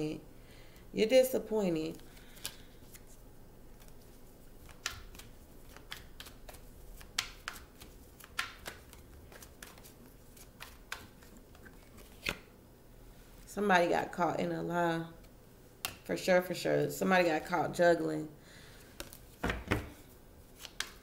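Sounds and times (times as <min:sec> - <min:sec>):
cards being shuffled: 0:01.9 - 0:12.5, 0:19.0 - 0:21.0.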